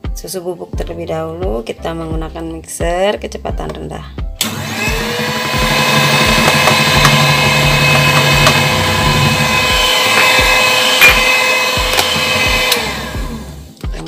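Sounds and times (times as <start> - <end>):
electric hand mixer whisking: 4.4 - 13.7.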